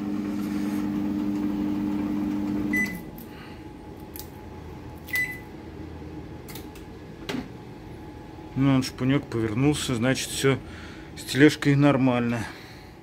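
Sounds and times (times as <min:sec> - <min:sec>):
microwave oven humming: 0:00.0 - 0:13.0
microwave short beep: 0:02.5 - 0:03.1, 0:05.1 - 0:05.5.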